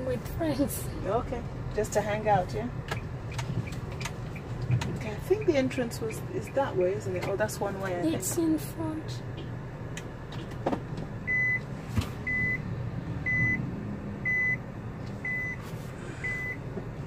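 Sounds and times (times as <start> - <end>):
electronic warning beeps: 11.3 - 11.6, 12.2 - 12.6, 13.2 - 14.6, 15.2 - 15.6, 16.2 - 16.6.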